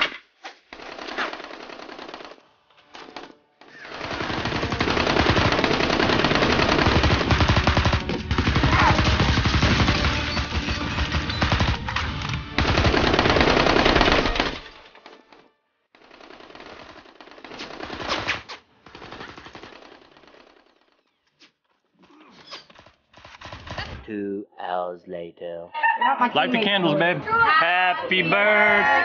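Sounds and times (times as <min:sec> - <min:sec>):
machine-gun fire: 0:03.8 - 0:14.8.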